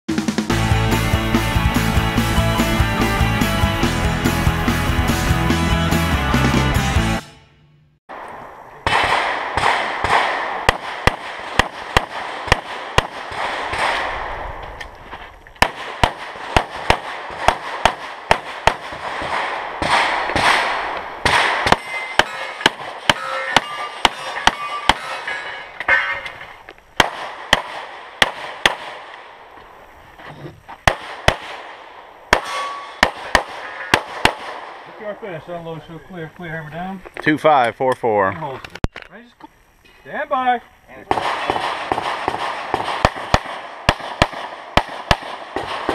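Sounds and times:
pistol shots: 8.1s - 14.4s, 15.6s - 26.4s, 27.0s - 29.5s, 30.8s - 35.0s, 41.1s - 45.9s.

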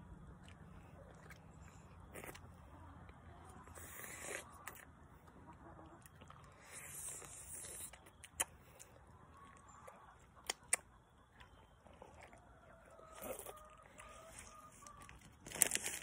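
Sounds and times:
chewing soft candy: 0.0s - 16.0s
faint steady tone: 4.8s - 15.4s
sharp mouth clicks: 10.4s - 10.9s.

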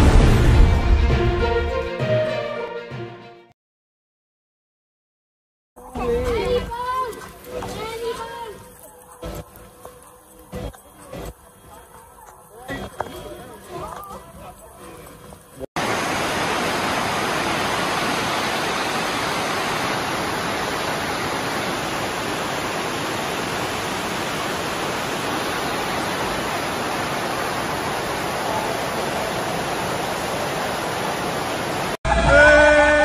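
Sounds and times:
floodwater rushing: 15.8s - 32.0s.

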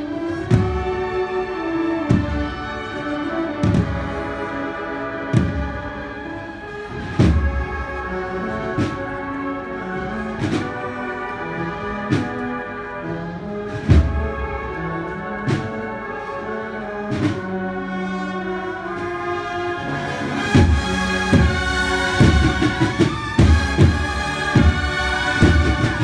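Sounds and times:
bugle chords: 0.0s - 26.0s
drum strokes: 3.6s - 4.2s, 6.8s - 9.2s, 13.7s - 15.7s, 20.2s - 26.0s.

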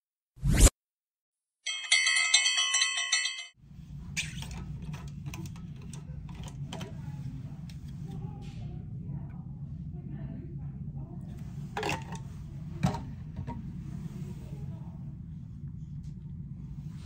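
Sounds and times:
bell-like chime: 1.7s - 3.6s
low room hum: 3.6s - 17.0s.

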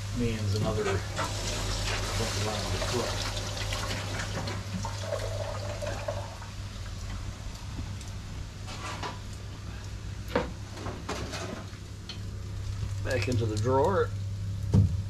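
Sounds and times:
smoker pan hissing: 0.0s - 10.8s.

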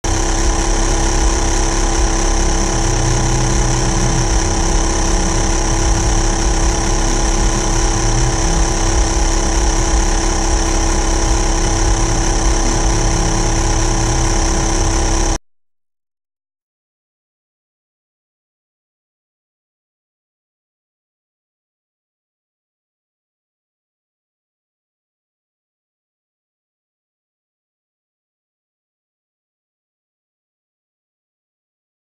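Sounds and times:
air compressor motor whining: 0.0s - 15.4s.

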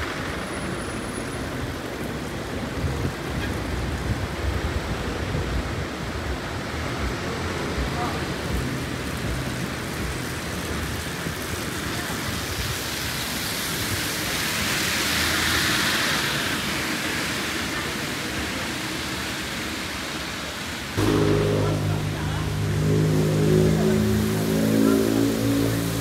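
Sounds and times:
rain: 0.0s - 26.0s
traffic hissing on wet road: 0.0s - 26.0s
low droning hum: 21.0s - 26.0s.

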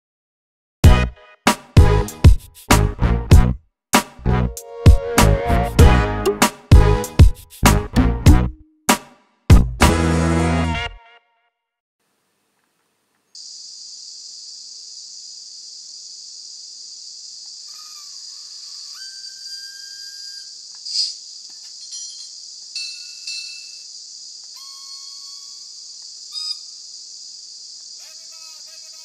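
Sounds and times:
faint whistle-like tones: 18.8s - 20.6s.

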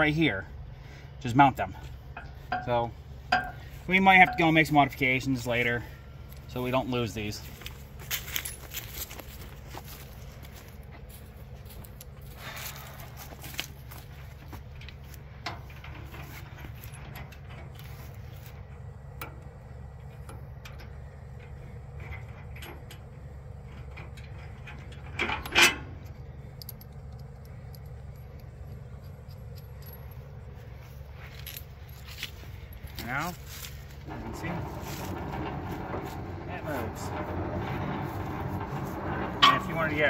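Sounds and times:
steady low rumble: 0.0s - 40.0s
metal clinks and knocks: 2.1s - 5.6s, 7.2s - 10.1s, 13.0s - 40.0s
loud metal clank: 34.1s - 40.0s.

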